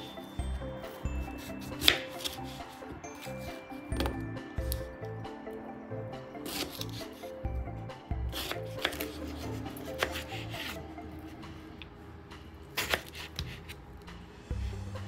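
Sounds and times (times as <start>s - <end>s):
background music: 0.0s - 15.0s
knife slicing fruit: 0.8s - 4.9s, 6.4s - 7.3s, 8.3s - 11.4s, 12.7s - 13.9s.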